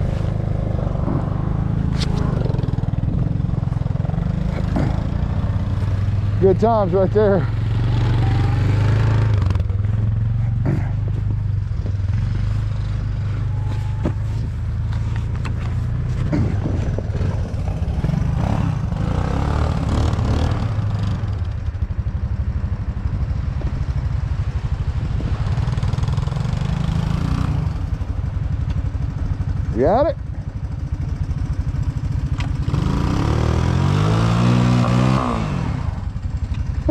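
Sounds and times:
vehicle engine running: 0.0s - 36.9s.

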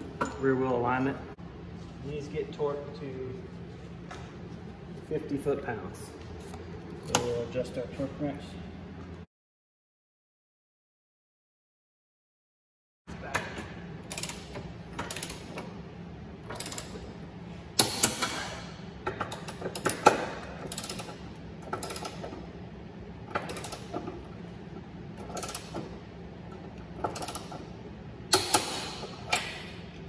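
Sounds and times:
ratchet wrench clicking: 14.1s - 15.4s, 16.5s - 17.0s, 19.3s - 22.3s, 23.4s - 23.9s.

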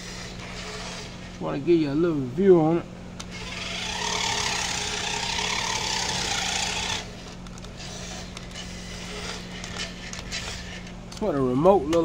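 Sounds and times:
toy car motor whirring: 0.0s - 1.2s, 3.2s - 10.9s.

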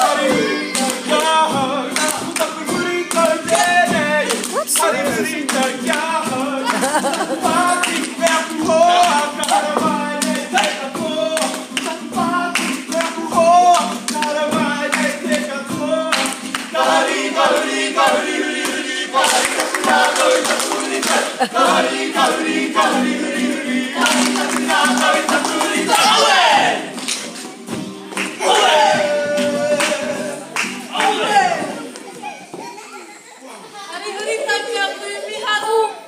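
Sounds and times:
voices singing together: 0.0s - 27.0s, 28.2s - 32.0s
strummed acoustic guitar: 0.0s - 32.0s
hand claps: 0.7s - 21.4s, 24.0s - 26.2s, 26.9s - 28.4s, 29.1s - 32.1s.

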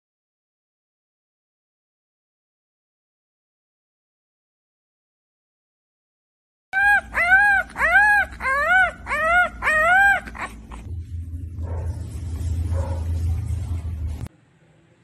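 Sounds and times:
puppy whining: 6.8s - 10.9s
steady low rumble: 10.7s - 14.3s.

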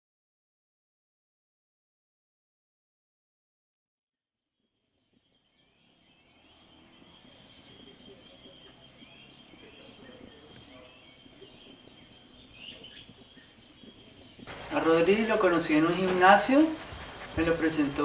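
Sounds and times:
low background noise: 5.2s - 18.0s.

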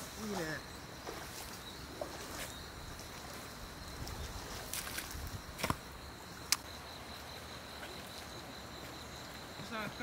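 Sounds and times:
hoe striking wet soil: 4.7s - 5.9s.

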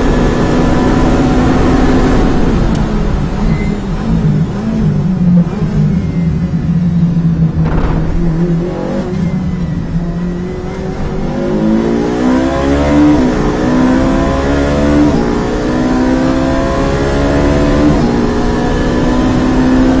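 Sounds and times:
race car engine accelerating: 0.0s - 20.0s.

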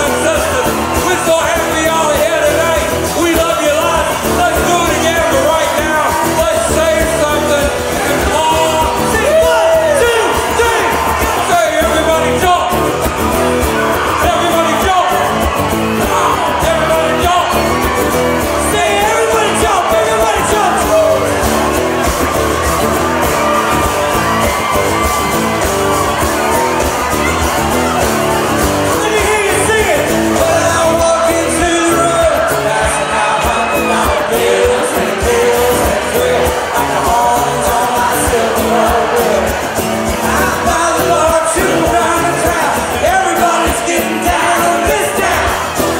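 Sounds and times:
country-rock band playing: 0.0s - 45.9s
person singing into a microphone: 30.4s - 45.8s.

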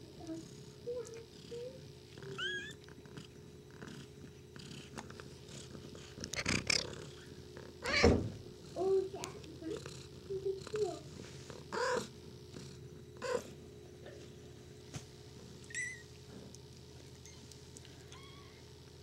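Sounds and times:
kittens mewing: 0.8s - 4.0s, 5.7s - 12.2s, 13.2s - 13.6s, 17.2s - 18.7s
cat meows: 7.8s - 8.2s.

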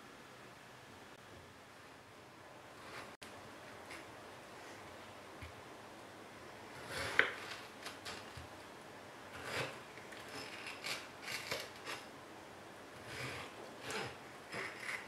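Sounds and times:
knife cutting on plastic board: 6.8s - 8.5s, 9.4s - 12.1s, 13.0s - 15.0s
knife scraping cutting board: 6.8s - 8.5s, 9.3s - 12.1s, 13.0s - 15.0s.

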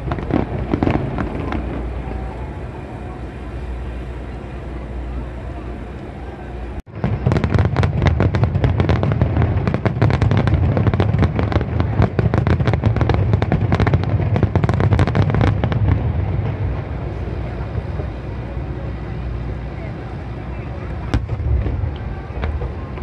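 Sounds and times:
fireworks bursting and crackling: 0.0s - 5.1s, 6.8s - 23.0s
deep rumble: 0.0s - 23.0s.

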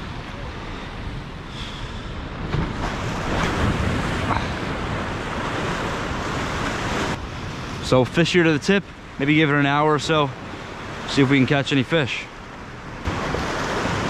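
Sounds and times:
ocean surf washing against rocks: 0.0s - 14.0s
wind buffeting microphone: 2.2s - 7.9s.

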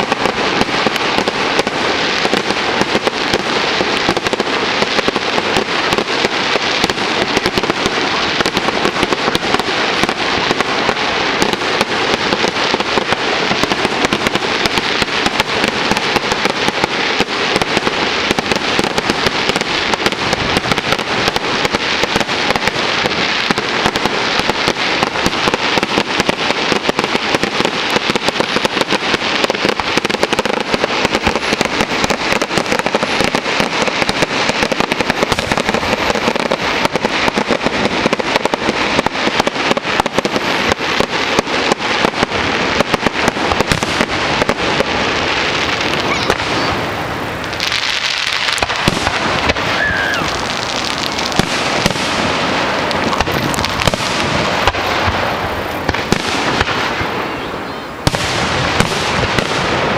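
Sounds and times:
fireworks bangs and crackling: 0.0s - 59.9s.

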